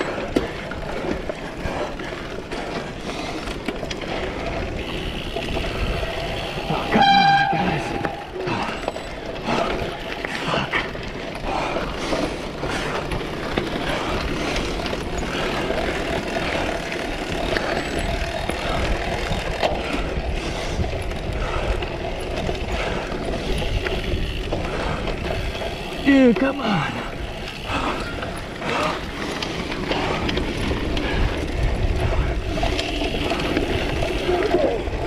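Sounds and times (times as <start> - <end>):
bike rattling clicks: 0.0 - 35.0
bike tyre noise: 0.0 - 35.0
wind rushing on microphone: 30.6 - 35.0.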